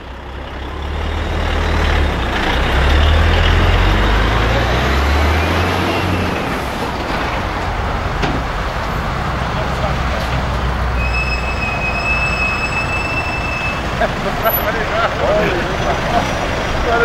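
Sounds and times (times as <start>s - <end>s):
heavy truck driving past: 0.0s - 17.0s.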